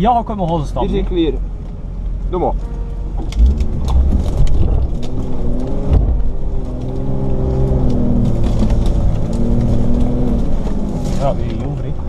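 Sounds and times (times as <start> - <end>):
diesel engine pulling at low revs: 0.0 - 12.0
knocks and clunks over rocks: 3.2 - 12.0.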